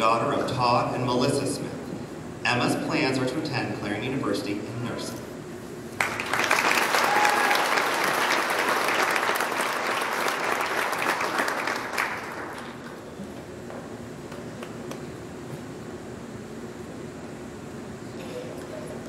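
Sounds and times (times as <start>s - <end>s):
audience applauding: 6.0s - 13.1s.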